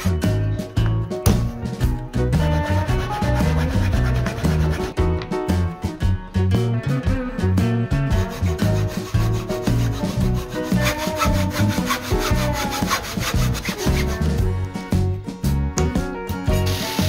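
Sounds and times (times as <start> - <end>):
background music: 0.0 - 17.0
hacksaw cutting wood: 8.2 - 14.3.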